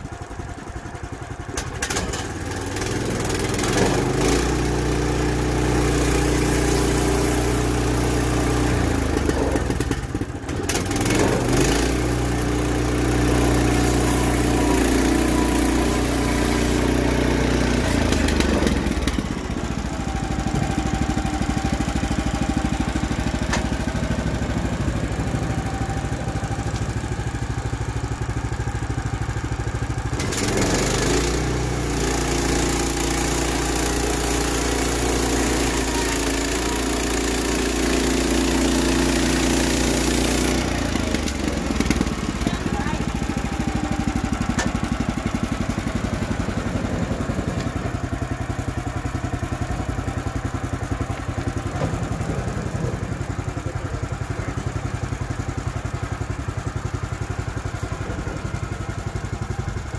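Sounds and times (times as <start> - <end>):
bandsaw mill engine running: 0.0 - 59.9.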